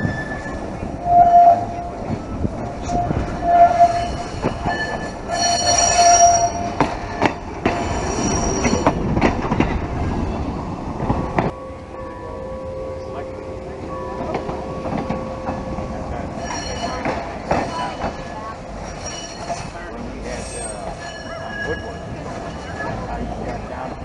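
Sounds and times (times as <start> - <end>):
train wheels squealing on curve: 0.0 - 1.9, 2.8 - 7.2, 7.8 - 9.1, 16.3 - 23.0.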